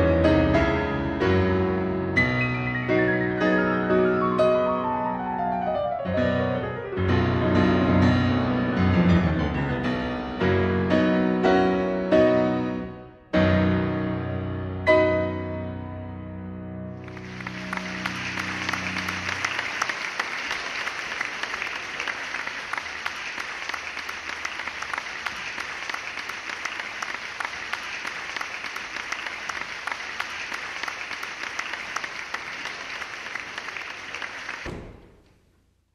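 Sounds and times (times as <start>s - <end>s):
audience applause: 17.0s - 35.1s.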